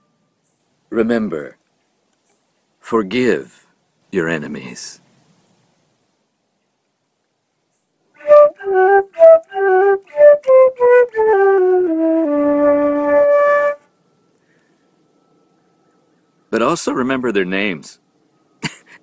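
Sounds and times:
flute playing: 0:08.2 - 0:14.4.

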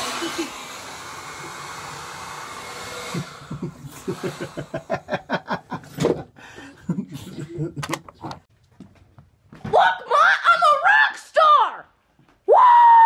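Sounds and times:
hair dryer blowing: 0:00.0 - 0:05.5
people laughing: 0:03.5 - 0:08.4.

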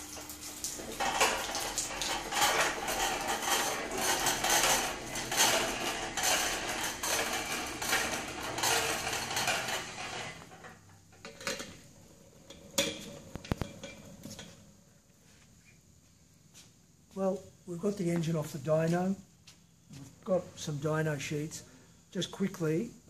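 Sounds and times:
engine crane rattling on concrete: 0:00.8 - 0:10.5.

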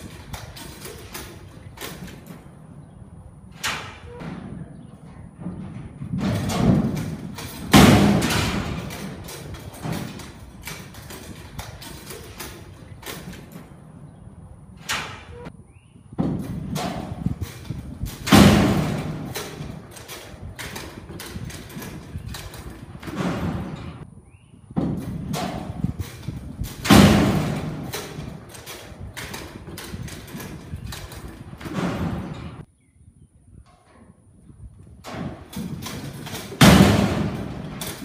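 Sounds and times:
bull hooves thudding in dirt: 0:00.0 - 0:14.2, 0:16.1 - 0:24.1, 0:24.8 - 0:32.7, 0:34.8 - 0:38.0
loud bangs: 0:03.4 - 0:13.8, 0:16.1 - 0:24.0, 0:24.8 - 0:32.7, 0:35.1 - 0:38.0.

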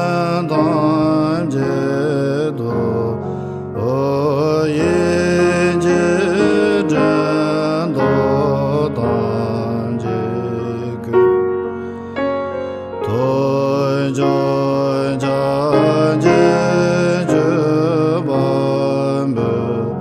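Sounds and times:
man chanting: 0:00.0 - 0:11.5, 0:13.0 - 0:20.0.

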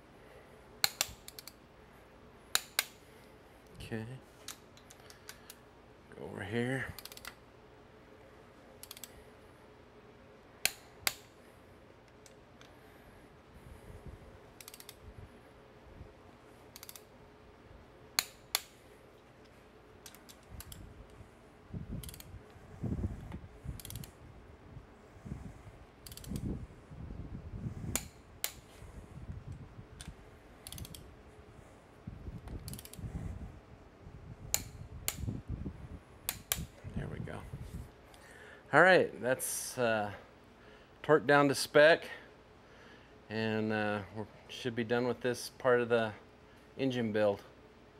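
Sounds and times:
torque wrench clicking: 0:00.8 - 0:01.6, 0:07.0 - 0:07.4, 0:08.8 - 0:09.2, 0:14.6 - 0:15.0, 0:16.7 - 0:17.1, 0:18.2 - 0:18.7, 0:20.0 - 0:20.8, 0:22.0 - 0:22.3, 0:23.8 - 0:24.1, 0:26.0 - 0:26.5, 0:30.0 - 0:31.0, 0:32.5 - 0:33.0.

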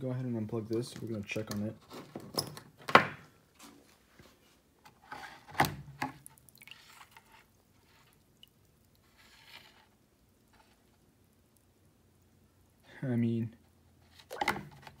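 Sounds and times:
wet sounds in water: 0:06.2 - 0:09.2.

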